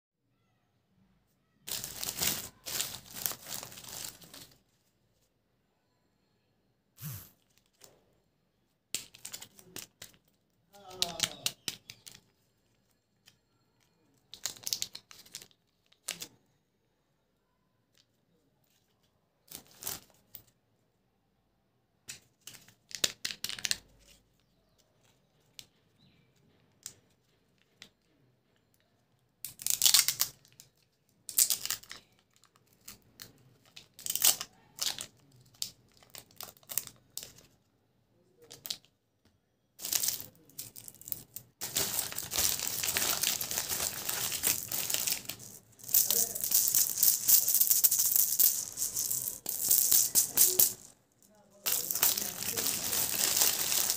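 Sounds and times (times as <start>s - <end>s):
wrapper crinkling: 1.7s - 4.8s, 14.3s - 16.3s, 29.6s - 37.5s, 39.8s - 53.9s.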